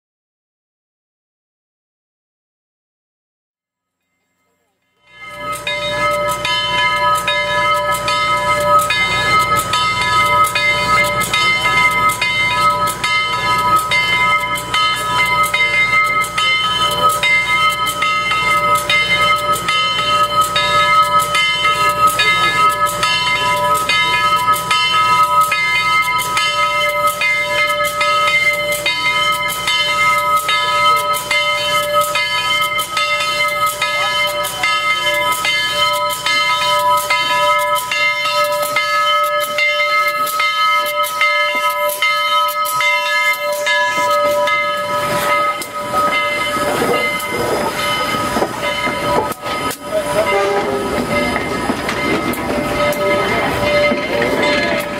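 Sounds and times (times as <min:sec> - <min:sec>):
locomotive bell ringing: 0:03.9 - 0:54.9.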